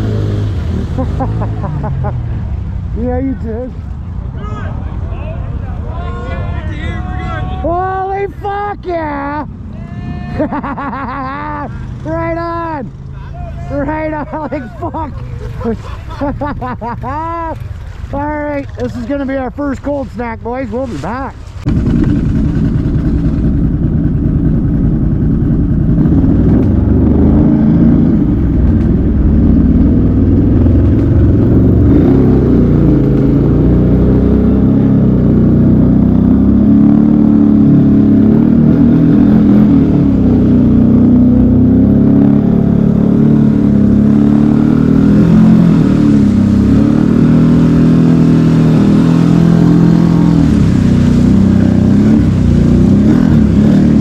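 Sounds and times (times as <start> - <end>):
atv engine revving: 0.0 - 54.0.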